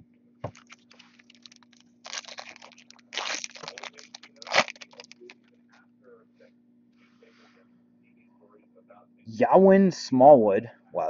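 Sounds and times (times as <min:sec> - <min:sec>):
foil wrapper crinkling: 0:00.5 - 0:05.4.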